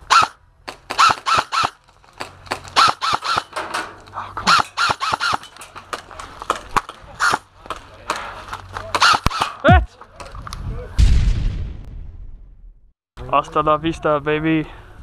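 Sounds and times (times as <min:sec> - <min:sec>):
airsoft rifle shots: 0:00.0 - 0:03.8, 0:04.4 - 0:08.2, 0:08.8 - 0:09.8.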